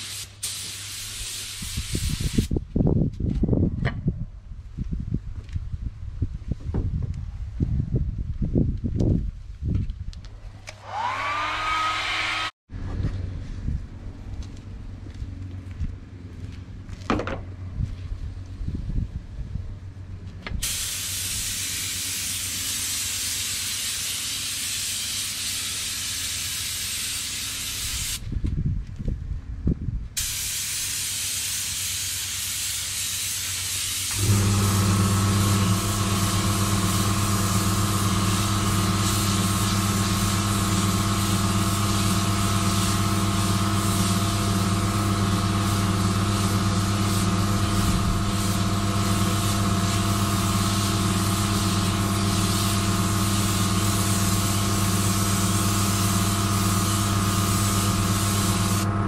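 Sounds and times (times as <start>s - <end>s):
spray gun hissing: 0.0s - 2.5s, 20.6s - 28.2s, 30.2s - 58.9s
air compressor humming: 34.1s - 59.0s.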